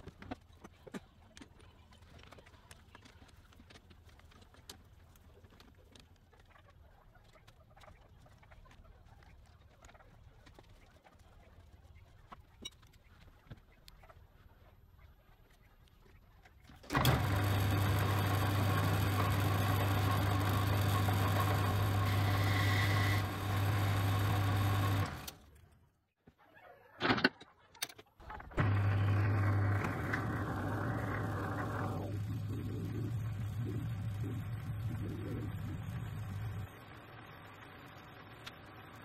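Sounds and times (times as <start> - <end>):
metal lathe motor hum: 16.9 - 25.4, 28.6 - 36.8.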